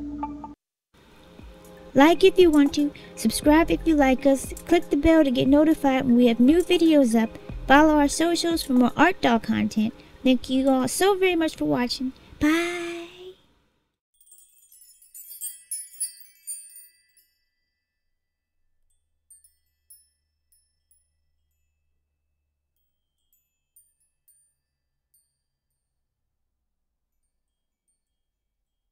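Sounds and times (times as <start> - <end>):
high tinkling chimes: 14.2 - 25.9, 27.1 - 28.9.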